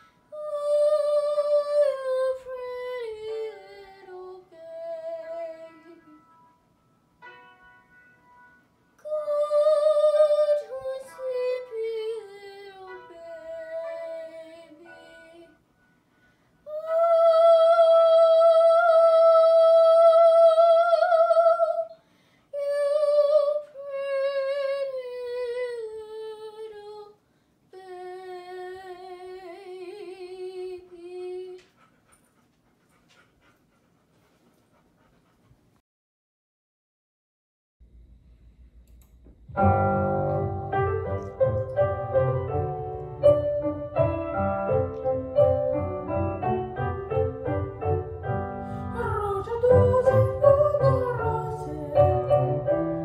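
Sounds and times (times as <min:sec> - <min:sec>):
girl singing with vibrato: 0:00.0 - 0:06.2, 0:09.0 - 0:15.6, 0:16.6 - 0:22.0, 0:22.6 - 0:31.6, 0:48.8 - 0:52.8.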